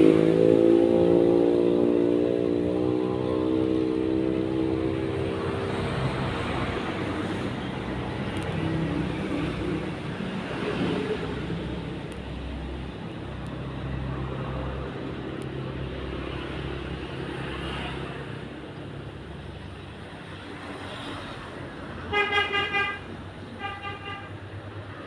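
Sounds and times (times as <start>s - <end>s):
traffic rumble: 0.0s - 25.0s
vehicle horn toots: 22.1s - 24.4s.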